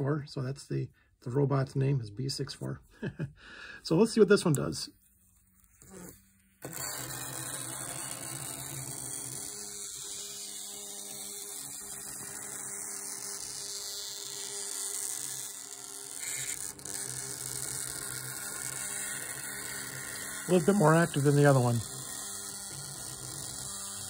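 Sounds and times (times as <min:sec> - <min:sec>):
vibration motor buzzing: 0:05.6 - 0:24.0.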